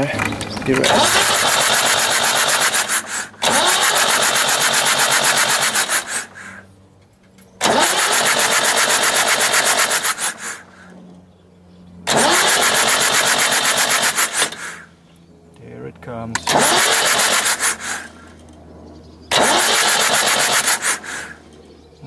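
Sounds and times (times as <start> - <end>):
diesel engine cranking on starter: 0.0 - 6.6, 7.6 - 11.0, 12.0 - 14.9, 16.4 - 18.6, 19.3 - 21.5.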